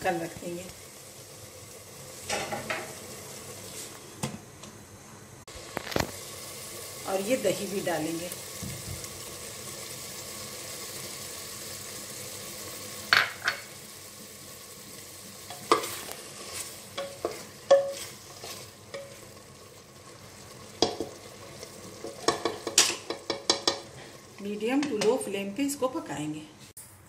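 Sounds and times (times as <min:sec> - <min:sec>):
food sizzling in a pot: 0:00.0 - 0:26.8
wooden spoon stirring: 0:15.6 - 0:19.4
spoon knocking on metal pot: 0:17.0 - 0:18.0, 0:20.8 - 0:21.1, 0:22.1 - 0:23.9.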